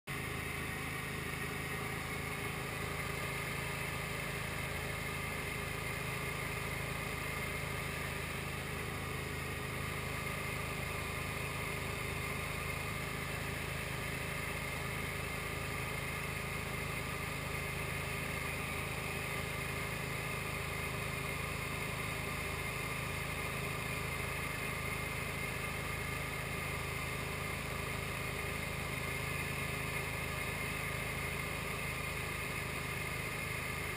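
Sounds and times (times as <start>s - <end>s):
light aircraft engine drone: 0.1s - 33.9s.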